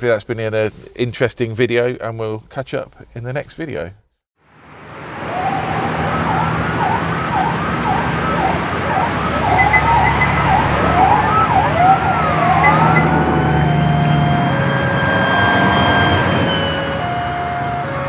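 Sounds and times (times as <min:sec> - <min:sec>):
siren-like wailing effect: 0:04.7 - 0:18.0.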